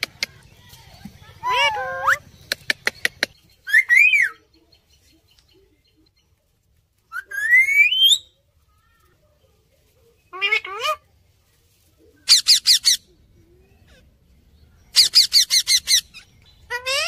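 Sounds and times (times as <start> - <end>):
parakeets whistling: 14.9 - 17.0.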